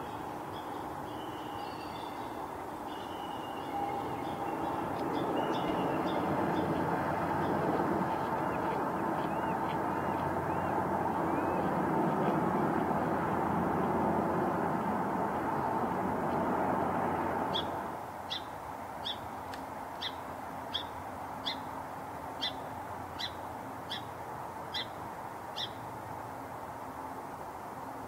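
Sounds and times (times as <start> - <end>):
rushing background noise: 2.4 - 28.0
sparrow chip calls: 7.4 - 12.4, 17.5 - 19.2, 22.4 - 22.6, 23.2 - 24.1, 24.7 - 25.0, 25.6 - 25.8.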